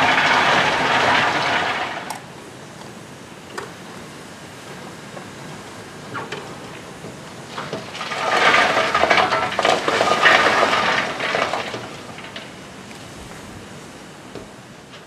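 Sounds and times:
coal clattering down a chute: 0.0s - 2.3s, 7.4s - 13.7s.

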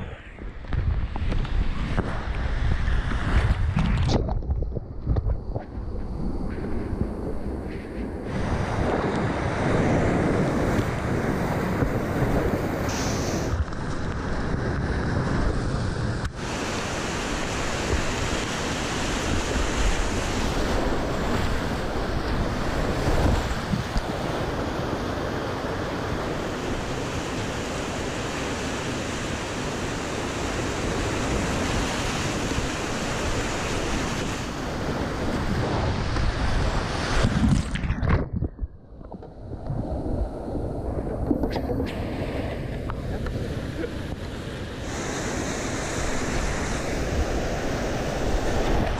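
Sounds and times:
rapids rushing water: 16.3s - 37.9s, 39.7s - 48.9s.

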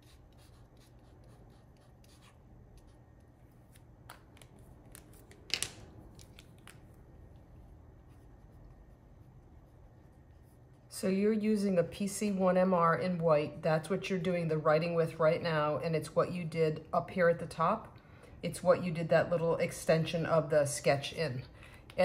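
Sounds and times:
marker tip rubbing on card: 0.0s - 3.0s.

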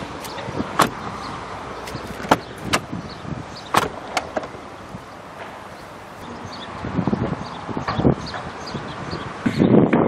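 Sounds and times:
car door clicks and knocks: 0.2s - 1.1s, 1.8s - 3.0s, 3.7s - 4.6s.

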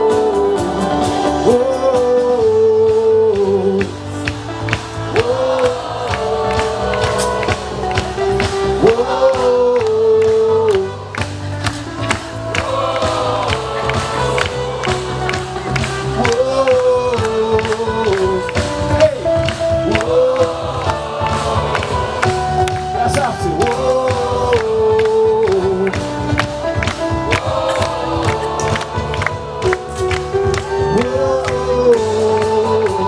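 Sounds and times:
person singing long notes: 0.0s - 11.2s, 27.2s - 33.0s
live band music: 0.0s - 33.0s.

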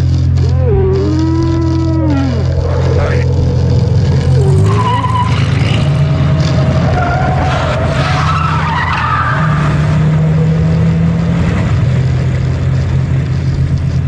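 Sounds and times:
faint wavering squeals: 0.0s - 9.7s
low electrical drone: 0.0s - 14.0s.

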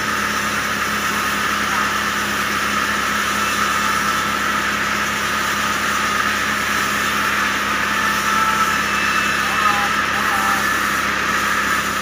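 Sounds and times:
band saw cutting log: 0.0s - 12.0s
diesel engine running: 0.0s - 12.0s.

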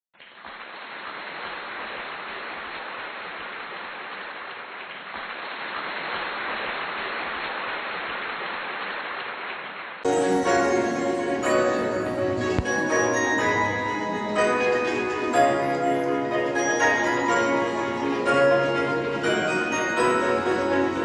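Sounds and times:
music with chiming bell-like notes: 10.1s - 21.0s.

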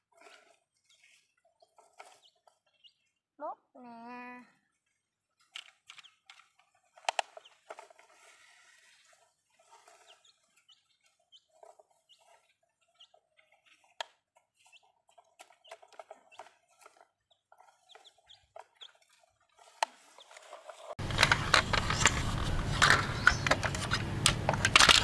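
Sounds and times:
chickens clucking: 7.2s - 24.5s.

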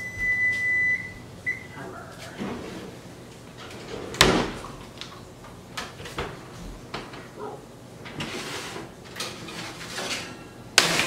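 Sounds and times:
baking tray metal clatters: 9.1s - 11.0s.

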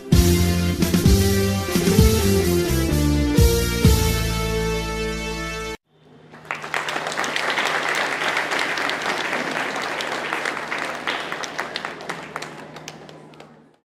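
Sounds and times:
audience applauding: 6.0s - 13.8s.

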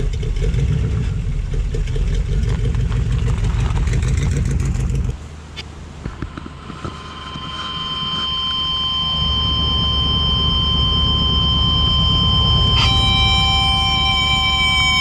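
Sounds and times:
car engine low rumble: 0.0s - 15.0s
steady high tones: 5.6s - 15.0s.

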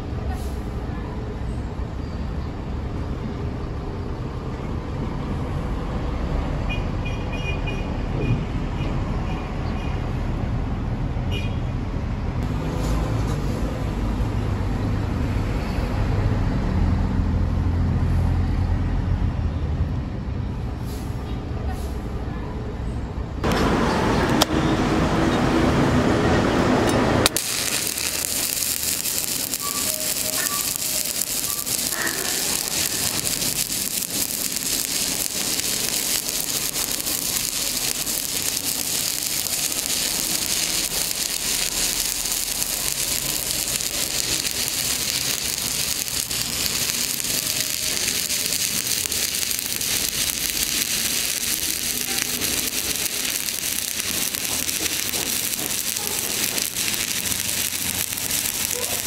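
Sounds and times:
welding arc crackling on steel: 26.8s - 59.0s.

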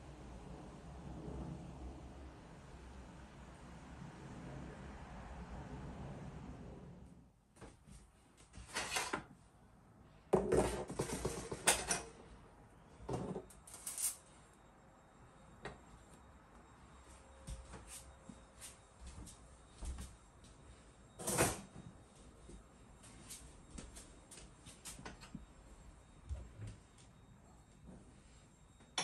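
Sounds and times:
kitchen items clattering: 10.4s - 12.1s.

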